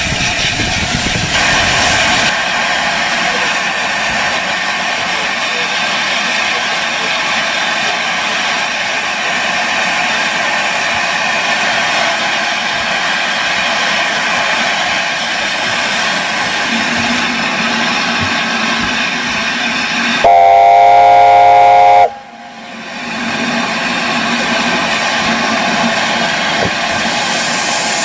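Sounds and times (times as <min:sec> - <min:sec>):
steam whistle blast: 0:20.2 - 0:22.4.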